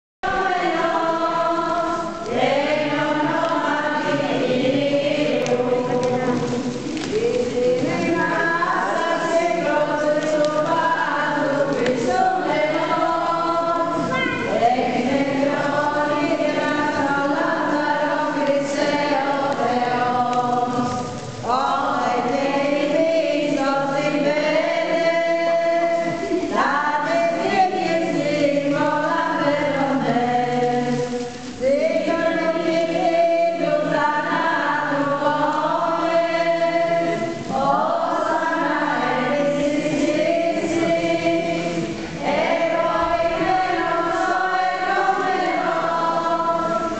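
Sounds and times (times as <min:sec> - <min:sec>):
congregation singing a hymn: 0:00.2 - 0:46.9.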